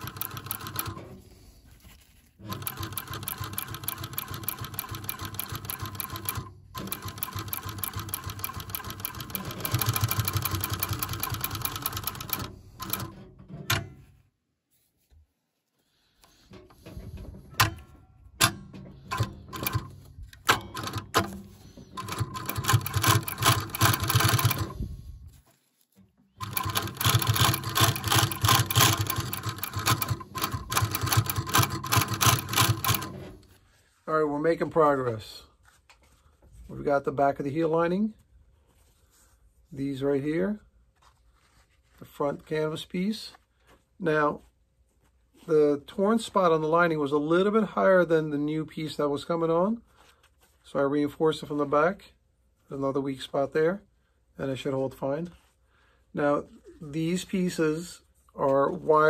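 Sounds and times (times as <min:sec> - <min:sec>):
sewing machine stitching: 0:00.0 - 0:01.2, 0:02.4 - 0:13.2, 0:19.1 - 0:24.9, 0:26.4 - 0:33.4.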